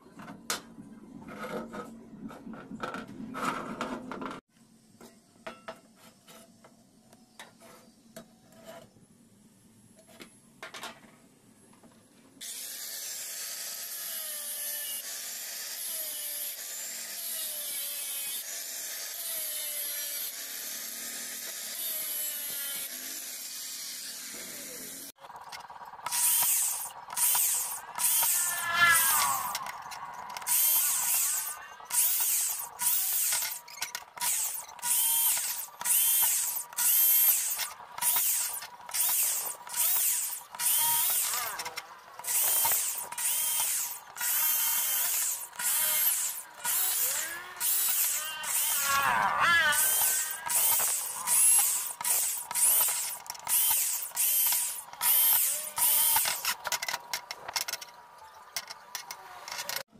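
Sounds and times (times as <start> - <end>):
cordless drill driving screws: 26.1 - 56.9.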